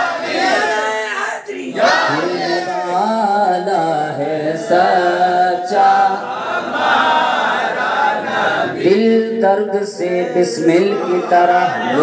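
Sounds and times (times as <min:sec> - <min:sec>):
man singing unaccompanied: 0:02.1 - 0:06.2, 0:08.8 - 0:12.0.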